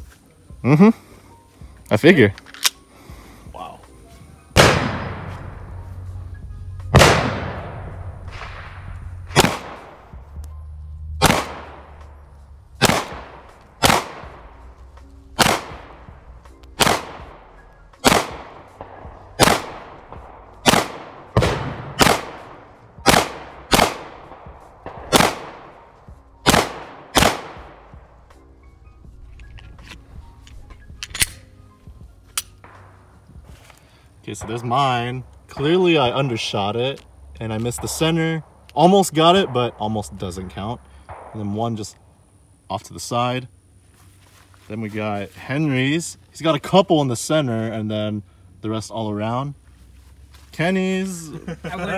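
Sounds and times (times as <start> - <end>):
handgun shots echoing: 4.6 - 5.7, 6.9 - 10.0, 11.2 - 12.0, 12.8 - 14.5, 15.4 - 16.0, 16.8 - 17.4, 18.0 - 28.0, 31.0 - 31.5.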